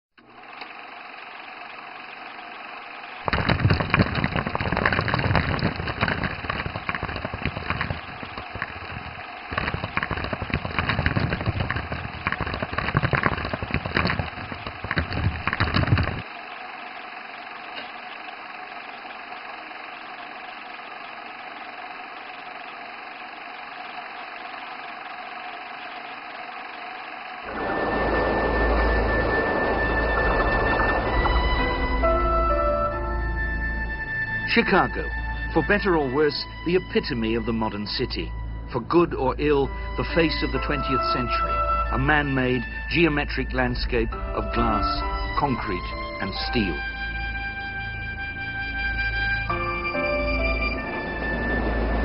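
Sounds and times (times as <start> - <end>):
film projector whirr: 0.2 - 32.2, 44.6 - 49.8
projector clattering rattle: 3.3 - 16.3.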